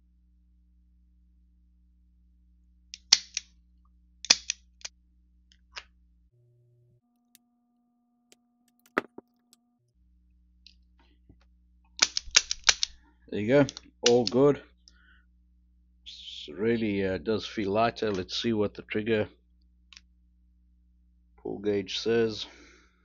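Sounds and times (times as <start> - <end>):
revolver metallic clicks: 3.0 - 3.5, 4.3 - 4.6, 12.0 - 13.0.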